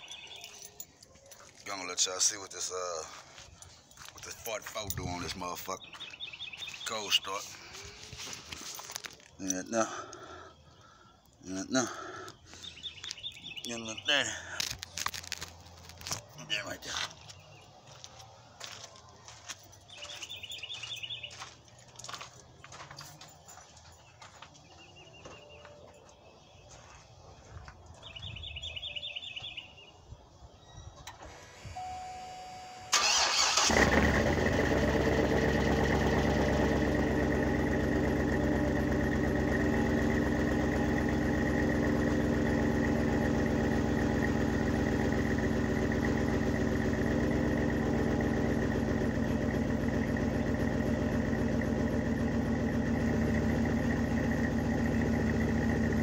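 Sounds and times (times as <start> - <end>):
car engine starting and idling: 31.0 - 56.0.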